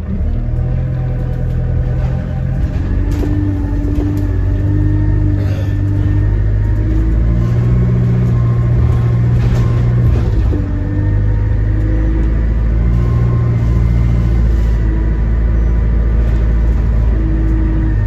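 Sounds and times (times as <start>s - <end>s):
bus engine drone: 0.0s - 18.0s.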